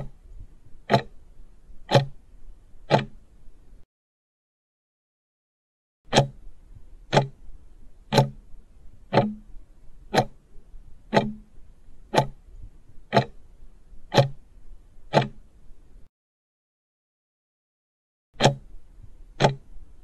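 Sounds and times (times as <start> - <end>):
clock ticking: 0.0 - 0.2, 0.9 - 1.2, 1.8 - 2.3, 2.9 - 3.3, 6.1 - 7.4, 8.1 - 8.5, 9.1 - 10.5, 11.1 - 12.5, 13.1 - 13.5, 14.1 - 14.4, 15.1 - 15.5, 18.4 - 19.7.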